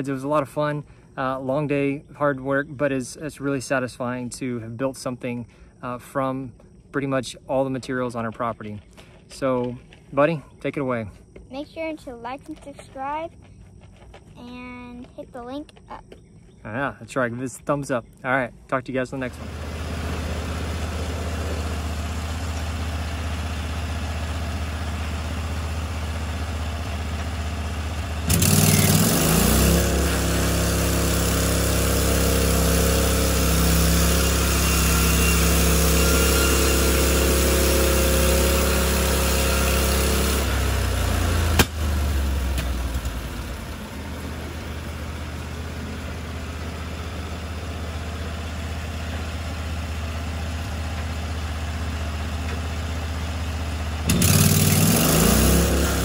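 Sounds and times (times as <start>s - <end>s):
bandsaw sawmill engine running: 19.2s - 56.0s.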